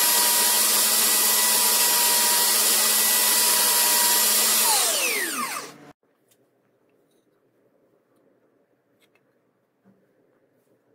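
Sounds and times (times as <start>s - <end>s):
belt sander whining: 0.0s - 5.9s.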